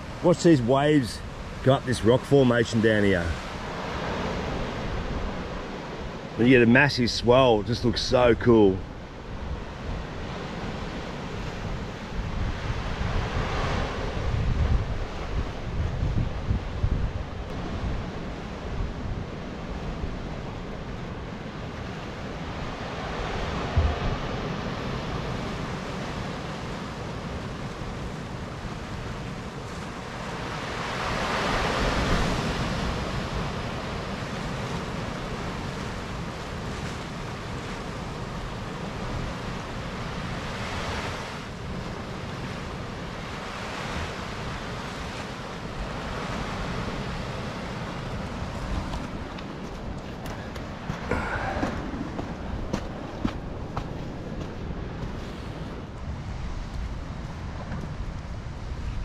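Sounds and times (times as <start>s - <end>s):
ocean waves on rock: 0.0s - 59.0s
wind rumble on microphone: 8.8s - 59.0s
short low thump: 23.8s - 24.1s.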